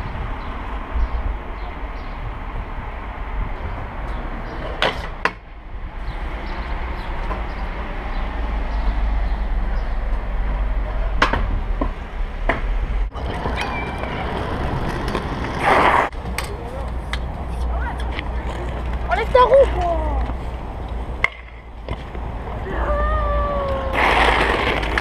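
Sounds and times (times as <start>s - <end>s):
scooter wheels rolling on pavement: 13.1s - 25.0s.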